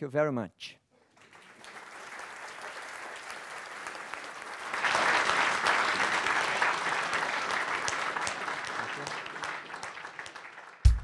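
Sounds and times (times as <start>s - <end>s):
audience applauding: 1.1s - 11.0s.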